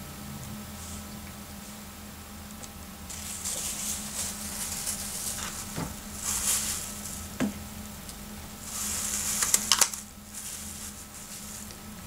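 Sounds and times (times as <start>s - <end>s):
plastic bag crinkling: 3.1s - 7.5s, 8.6s - 11.8s.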